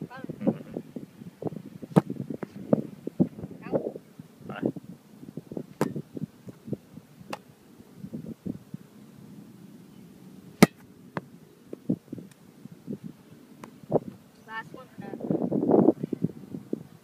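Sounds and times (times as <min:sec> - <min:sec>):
football slapping into hands: 0:01.9 - 0:02.5, 0:05.8 - 0:06.0, 0:10.6 - 0:11.8.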